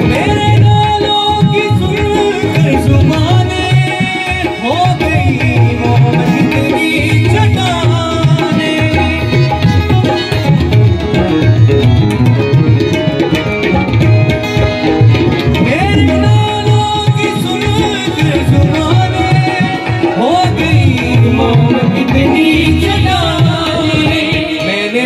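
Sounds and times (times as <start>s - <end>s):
harmonium chords: 0.0s - 25.0s
tabla playing rhythm: 0.0s - 25.0s.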